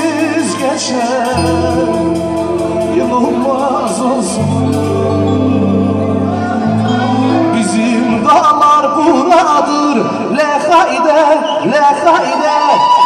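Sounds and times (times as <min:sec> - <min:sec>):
percussion beat: 0:00.0 - 0:05.0
person singing: 0:00.0 - 0:09.6
synthesizer keyboards: 0:00.0 - 0:10.3
electric guitar: 0:00.0 - 0:10.4.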